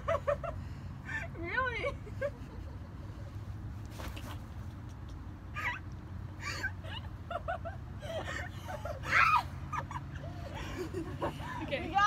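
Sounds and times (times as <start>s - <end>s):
woman squeaking and whimpering: 5.6s - 5.9s.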